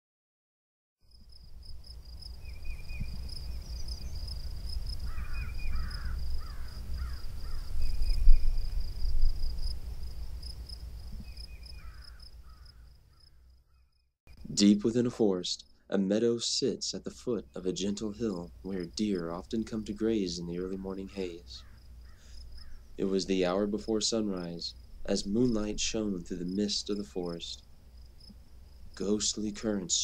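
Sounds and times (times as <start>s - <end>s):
crickets chirping: 1.0s - 16.0s, 16.6s - 30.0s
low wind rumble: 2.1s - 12.2s.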